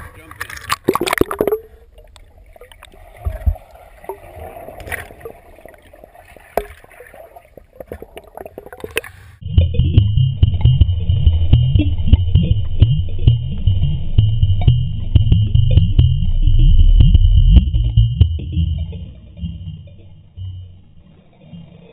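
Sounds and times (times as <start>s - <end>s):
faint gurgling: 0.0s - 10.0s
muffled underwater sound: 0.0s - 21.9s
underwater clicks: 0.3s - 9.2s, 10.4s - 19.7s.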